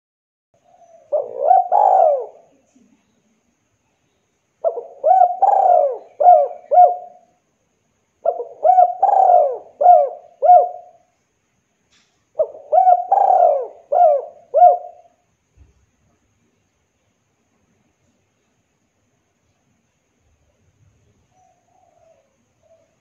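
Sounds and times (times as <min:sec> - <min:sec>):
dove cooing: 0:00.6 - 0:02.6, 0:04.6 - 0:07.3, 0:08.2 - 0:11.1, 0:12.4 - 0:15.2, 0:21.3 - 0:23.0.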